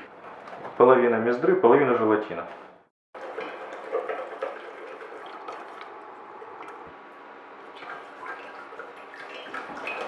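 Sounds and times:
glue being stirred in a pot: 3.2 - 10.0.

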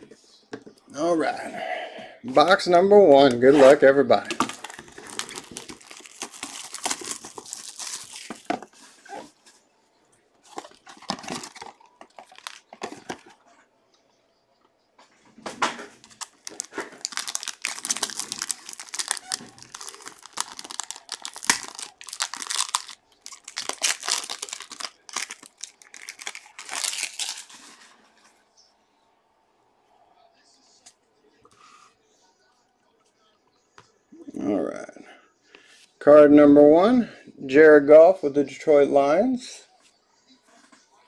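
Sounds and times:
plastic and foil wrapping crinkling: 3.6 - 9.6, 10.4 - 13.4, 15.8 - 28.0.

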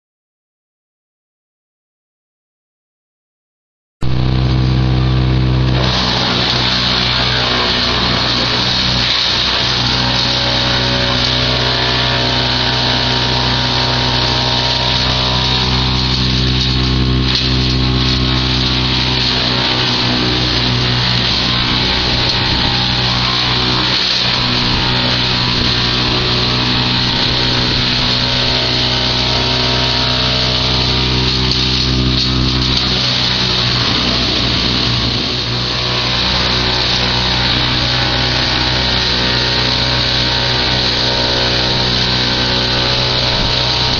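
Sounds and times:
branch chipper droning: 4.0 - 43.9.

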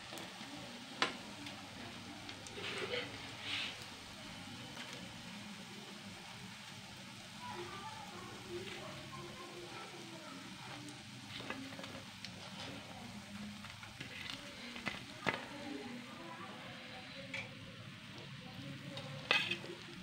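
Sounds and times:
fritters sizzling in hot oil: 0.0 - 20.0
metal spoon clicking on pan: 19.2 - 19.7.

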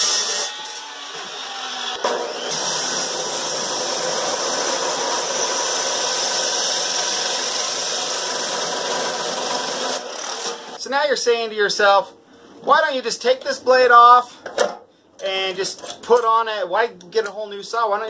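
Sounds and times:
chop saw grinding through metal: 0.0 - 10.8.

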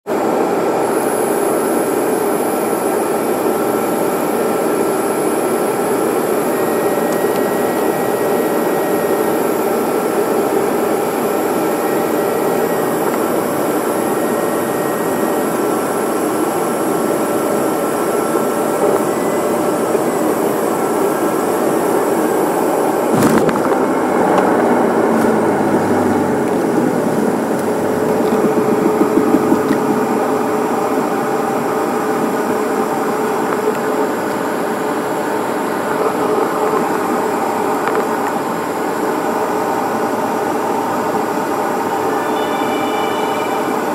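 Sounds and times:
airliner cabin jet engine noise: 0.1 - 43.9
thin steady whine: 0.1 - 43.9
wheels rumbling on runway: 10.0 - 42.0
landing gear thump: 23.1 - 23.7.

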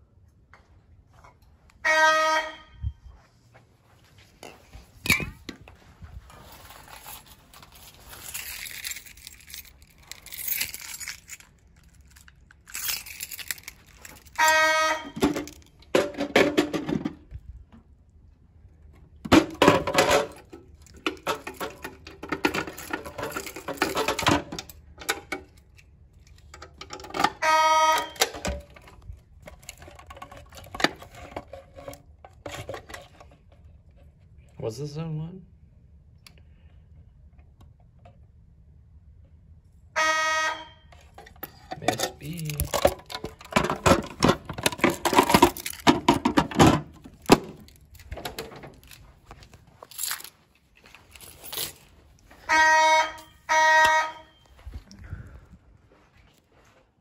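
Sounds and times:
fire alarm horn blasts: 1.7 - 3.2, 14.3 - 15.5, 27.3 - 28.4, 39.9 - 41.0, 52.4 - 54.6
plastic cover clattering: 41.0 - 49.0.

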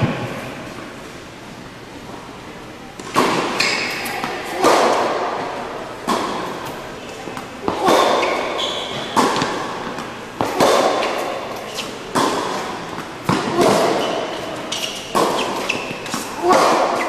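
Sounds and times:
racquet hitting tennis ball: 2.9 - 17.0
tennis ball bouncing: 3.0 - 17.0
shoe squeaks on court: 3.6 - 4.2, 8.1 - 9.2, 11.0 - 12.1, 13.8 - 16.3.

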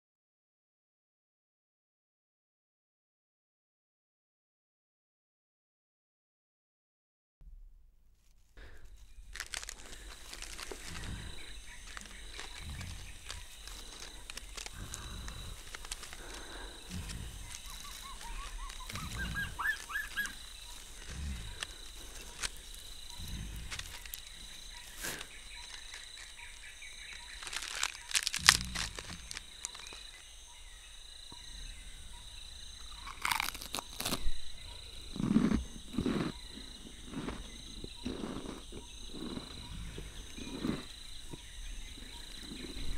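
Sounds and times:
sharp cracks: 8.6 - 24.3, 27.3 - 30.0
insect drone: 8.6 - 42.9
deep animal growls: 9.8 - 25.2, 28.4 - 29.6, 31.3 - 33.2, 34.4 - 42.9
bird chirps: 10.2 - 33.2.

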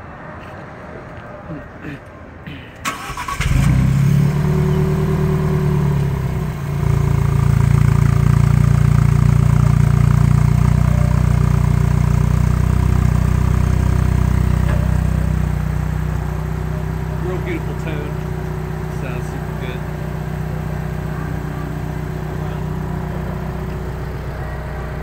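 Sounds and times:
car engine idling: 2.8 - 25.0.

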